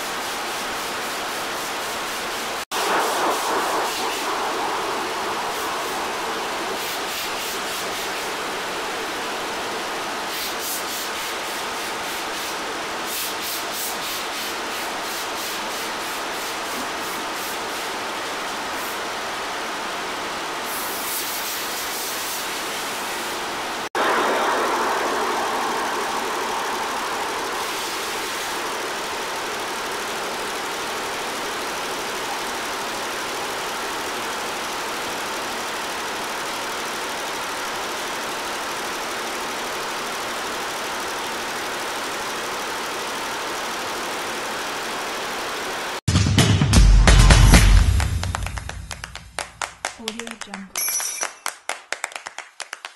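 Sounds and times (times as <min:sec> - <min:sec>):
embroidery machine humming: 0:02.8 - 0:10.3, 0:22.7 - 0:46.0.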